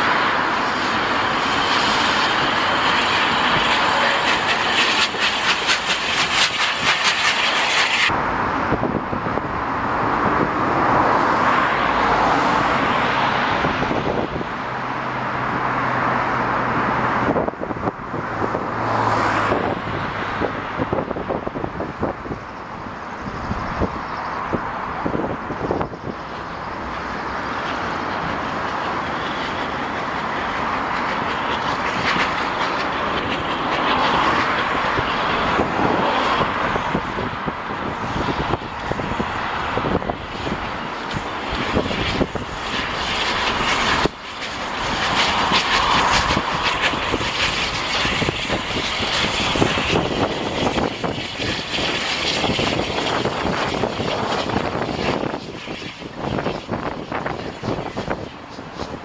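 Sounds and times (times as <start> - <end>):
steam locomotive exhaust: 0.0 - 8.2, 23.9 - 59.0.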